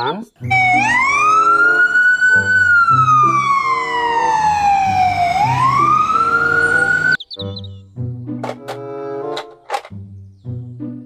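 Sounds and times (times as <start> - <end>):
light background music: 0.0 - 11.0
ambulance siren wailing: 0.4 - 7.2.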